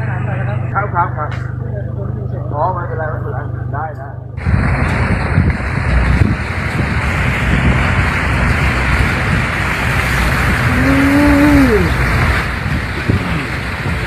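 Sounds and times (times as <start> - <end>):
vehicle rumble: 0.0 - 14.0
tyres hissing through water: 4.6 - 14.0.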